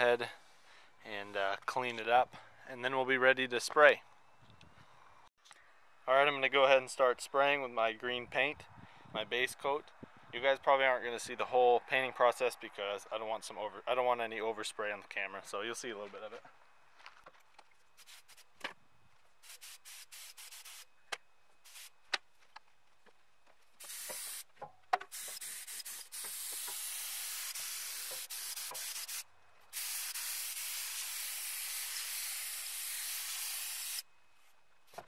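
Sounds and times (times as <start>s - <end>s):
paint spray gun hissing: 19.4s - 20.9s, 21.7s - 21.9s, 23.8s - 24.5s, 25.1s - 34.0s.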